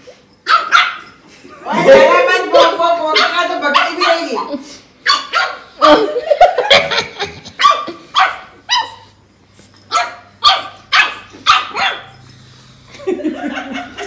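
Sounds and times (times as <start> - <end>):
dog barking: 0.4 - 1.2, 3.1 - 5.8, 7.6 - 9.1, 9.9 - 12.2.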